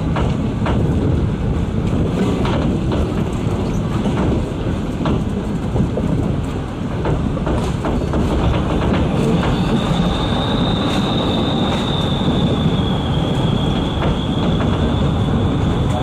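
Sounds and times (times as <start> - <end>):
train rumbling: 0.0 - 16.0
wheels clacking over rail joints: 1.8 - 12.6.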